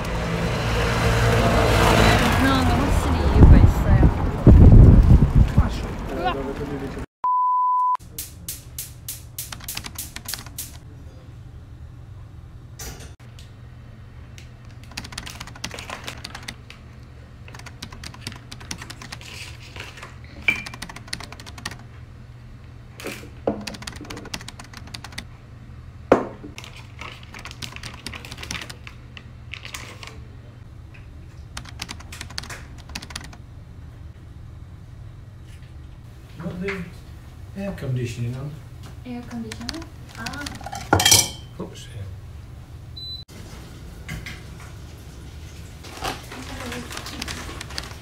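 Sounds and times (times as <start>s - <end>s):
cookware and utensils clattering: 40.6s - 41.6s.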